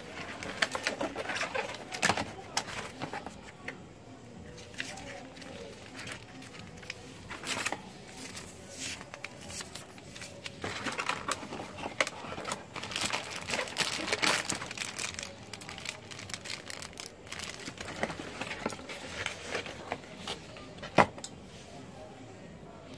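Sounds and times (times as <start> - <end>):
paper leaflets rustling: 4.6 - 20.5
plastic bag crinkling: 9.0 - 20.0.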